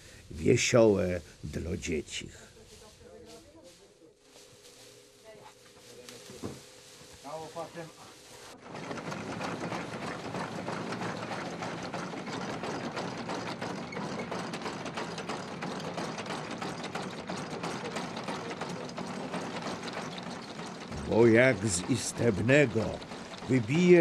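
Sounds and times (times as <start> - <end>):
fan whirring: 4.3 - 24.0
clatter of gears and sieves: 7.3 - 24.0.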